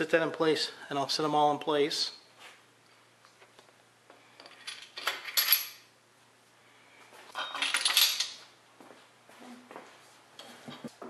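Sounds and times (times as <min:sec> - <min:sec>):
metal parts clinking and rattling: 0:04.4 - 0:05.9, 0:07.4 - 0:08.4.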